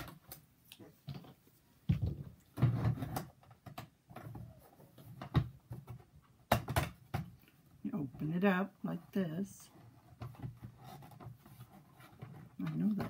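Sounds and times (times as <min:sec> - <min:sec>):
hollow plastic knocks and clicks: 0:01.0 - 0:07.6, 0:09.8 - 0:13.0.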